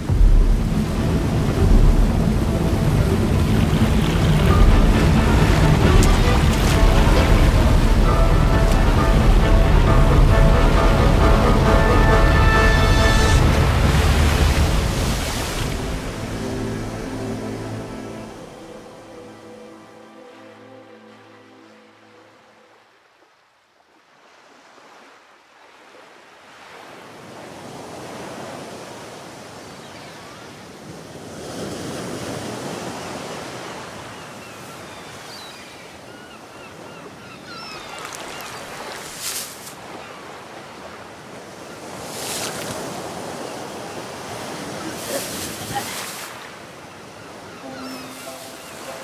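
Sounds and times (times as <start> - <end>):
music: 0.0 - 22.8, 47.3 - 49.0
ocean waves washing in: 0.0 - 23.3, 37.5 - 49.0.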